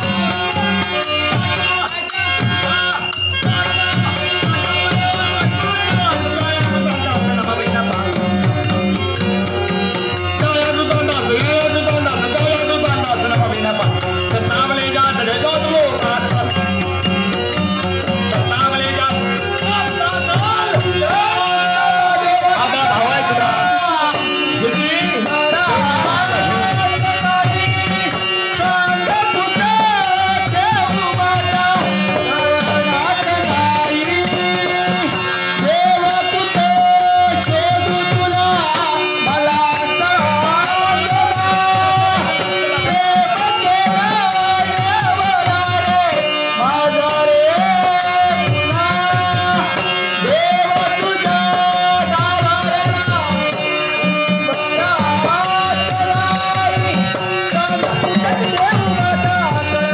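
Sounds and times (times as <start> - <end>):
barrel drum: 0.0 - 21.6, 26.1 - 39.0, 47.1 - 53.8, 54.4 - 59.9
harmonium: 0.0 - 59.9
jingling percussion: 0.0 - 59.9
man singing: 0.0 - 59.9.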